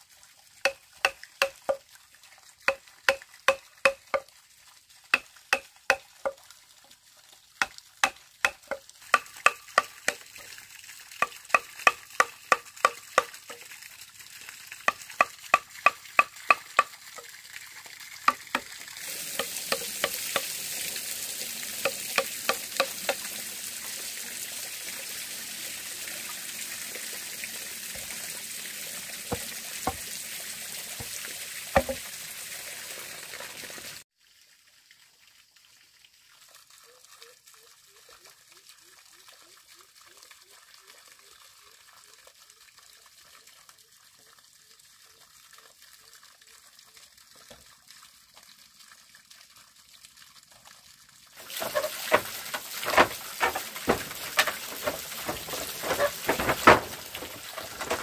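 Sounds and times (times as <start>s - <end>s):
utensil knocking on pot: 0.7s - 1.8s, 2.7s - 4.2s, 8.0s - 10.2s, 11.2s - 13.6s, 14.9s - 16.9s, 19.4s - 20.5s, 29.3s - 30.0s, 31.8s - 32.0s.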